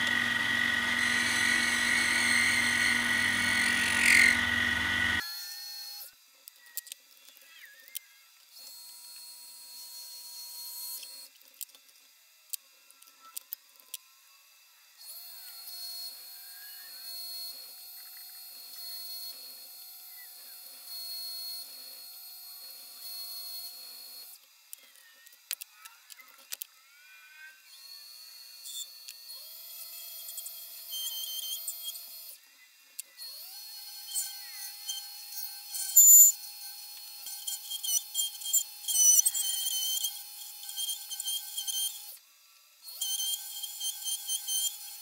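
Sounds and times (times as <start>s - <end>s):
drill boring into metal: 0.0s - 5.3s, 33.3s - 42.2s
lathe motor whine: 0.0s - 5.6s.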